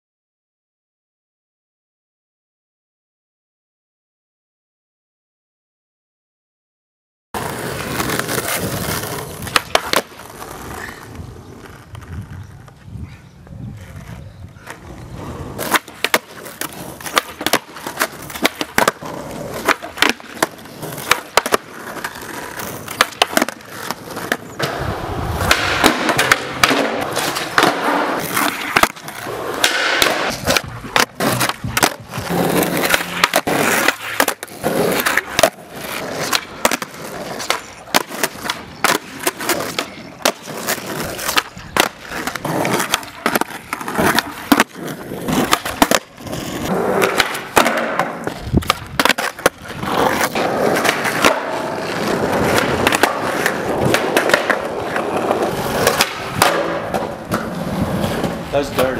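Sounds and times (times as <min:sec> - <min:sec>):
skateboard pops and clacks: 0:07.4 - 0:10.9, 0:15.6 - 0:58.8
skateboard wheels rolling on asphalt: 0:07.4 - 0:58.9.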